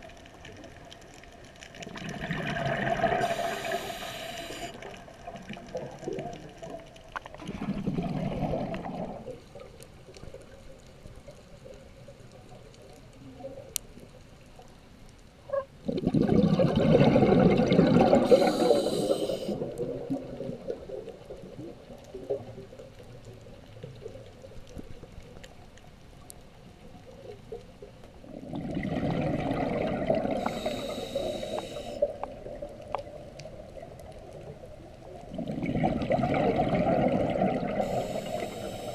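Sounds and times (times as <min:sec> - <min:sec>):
underwater breath bubbles gurgling: 0:00.5 - 0:10.6, 0:15.8 - 0:22.9, 0:28.2 - 0:38.9.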